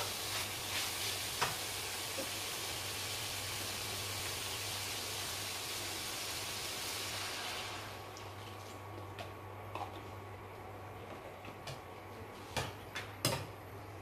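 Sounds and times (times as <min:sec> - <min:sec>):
food sizzling in a wok: 0:00.0 - 0:08.0.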